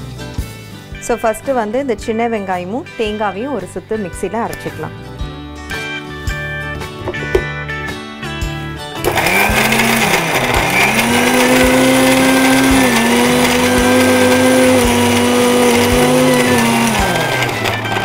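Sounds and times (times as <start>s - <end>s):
contents churning in grinder jar: 9.0s - 18.0s
mixer grinder motor whine: 9.0s - 18.0s.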